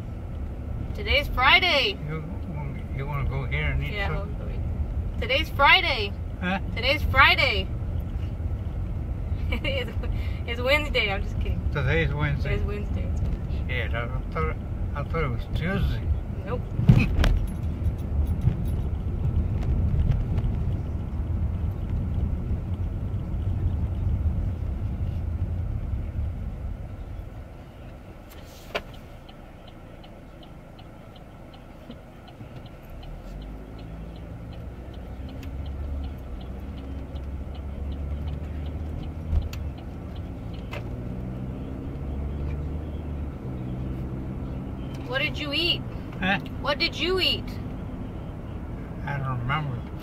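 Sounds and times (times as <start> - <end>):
car road and engine rumble: 0.0 - 50.0
faint ticking: 27.6 - 40.9.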